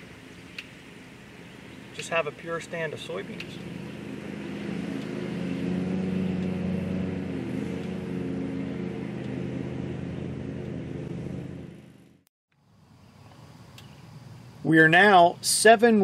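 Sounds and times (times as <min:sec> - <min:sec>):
engine running: 0:00.0 - 0:14.6.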